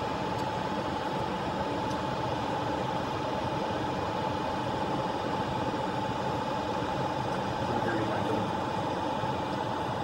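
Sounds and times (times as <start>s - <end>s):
extractor fan whining: 0.0s - 10.0s.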